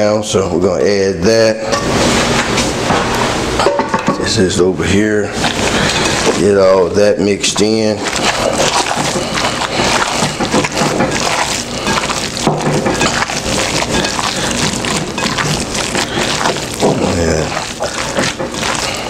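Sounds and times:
raw meat squishing: 5.1 - 19.0.

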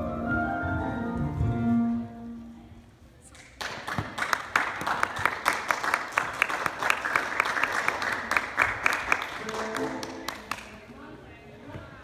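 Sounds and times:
crowd applauding: 3.6 - 10.8.

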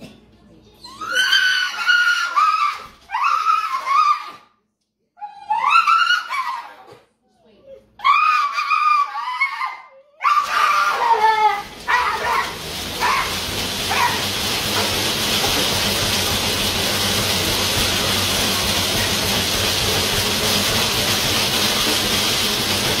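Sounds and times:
dog squeals: 0.8 - 4.5, 5.2 - 7.0, 7.6 - 14.2
treadmill belt rattling rumble: 10.4 - 23.0.

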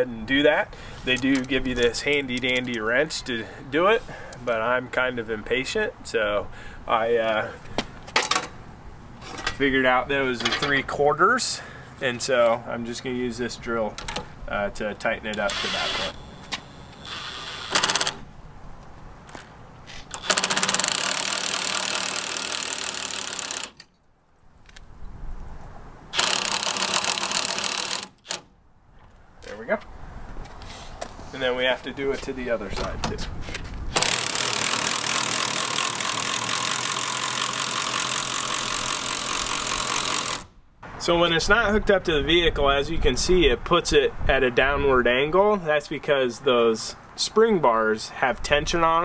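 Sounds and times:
cordless drill rattling: 15.5 - 18.3, 20.0 - 23.9, 26.1 - 28.4, 33.9 - 40.5.

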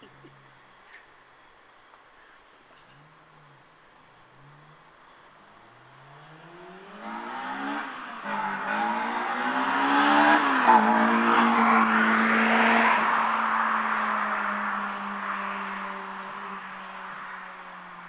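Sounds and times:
car engine accelerating hard: 4.4 - 18.0.

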